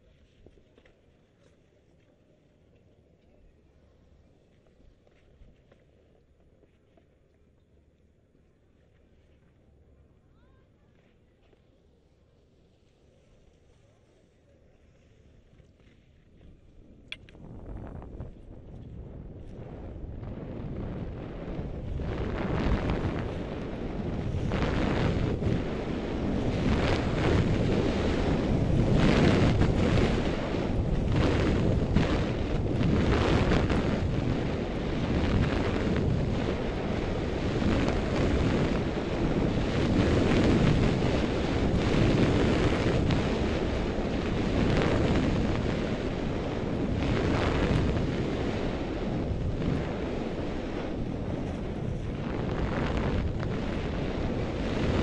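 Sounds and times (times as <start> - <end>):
wind buffeting microphone: 0.0 - 55.0
skis scraping on snow: 18.2 - 55.0.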